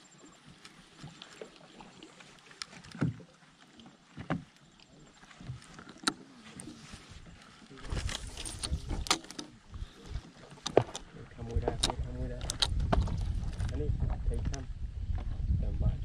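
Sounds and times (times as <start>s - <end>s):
water splashes: 0.0s - 14.6s
fishing reel rumbling and clicking: 10.6s - 14.7s.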